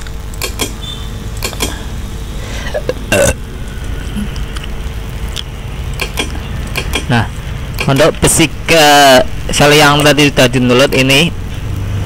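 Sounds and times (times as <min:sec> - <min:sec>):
room noise hum: 0:00.0 - 0:12.0
mouse clicks: 0:00.4 - 0:00.8, 0:01.4 - 0:01.8, 0:06.0 - 0:07.1
throat clearing: 0:02.7 - 0:03.4.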